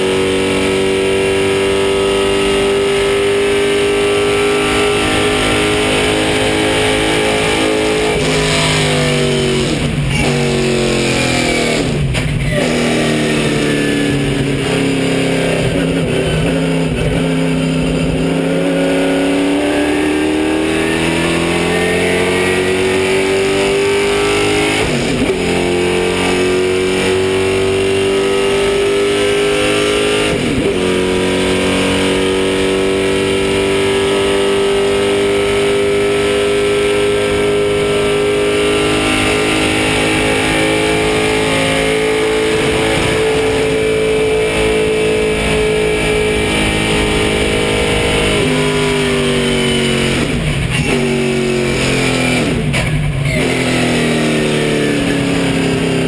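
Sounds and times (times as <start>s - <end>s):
race car engine at high revs: 0.0s - 56.0s.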